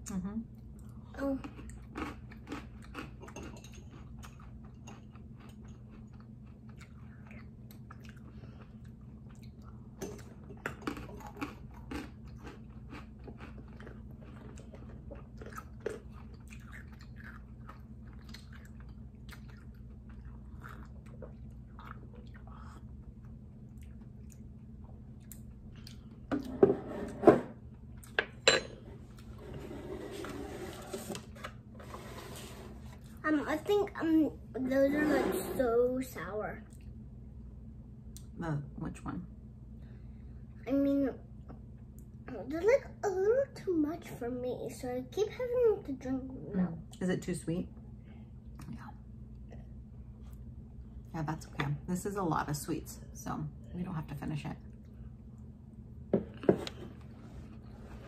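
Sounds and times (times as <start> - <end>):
steady low hum: 0.0 - 58.0
crunchy chewing: 1.4 - 24.5.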